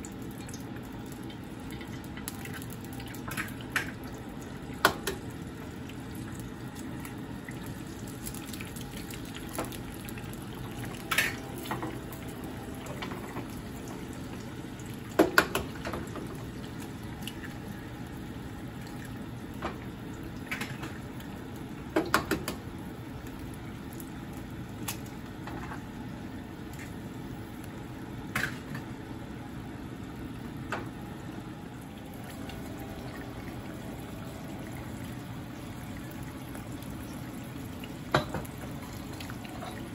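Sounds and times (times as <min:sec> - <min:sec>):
eggs sizzling in frying pan: 0:00.0 - 0:39.9.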